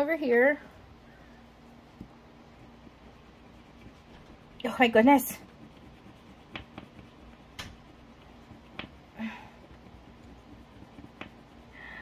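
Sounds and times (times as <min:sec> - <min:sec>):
coin scratching paper card: 0:02.6 - 0:09.0, 0:09.7 - 0:11.5.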